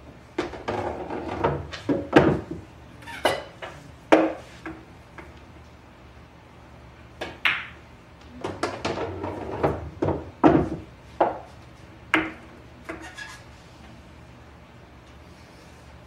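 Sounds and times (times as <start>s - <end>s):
pool balls clicking: 7.2s - 11.5s, 12.1s - 13.1s.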